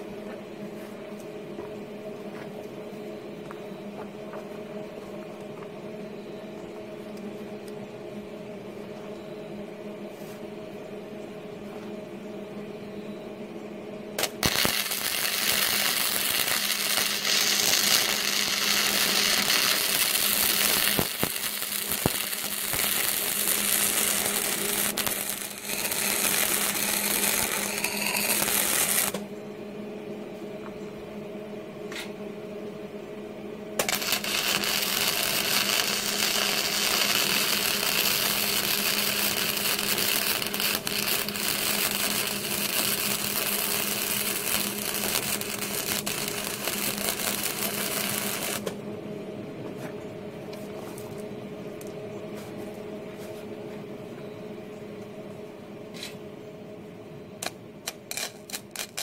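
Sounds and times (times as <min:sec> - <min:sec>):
welder humming: 0:14.0 - 0:49.0, 0:57.4 - 0:59.0
welding arc crackling: 0:14.2 - 0:29.2, 0:33.8 - 0:48.8, 0:57.4 - 0:59.0.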